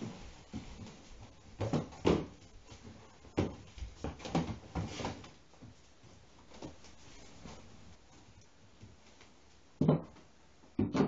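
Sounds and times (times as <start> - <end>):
knocks and thumps on wood: 1.6 - 2.4, 9.8 - 10.2, 10.8 - 11.0.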